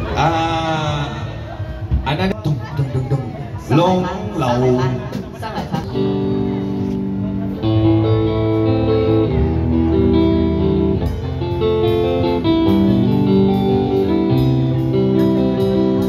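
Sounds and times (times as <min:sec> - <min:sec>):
bass guitar: 0:00.0 - 0:16.0
electric guitar held notes: 0:05.8 - 0:16.0.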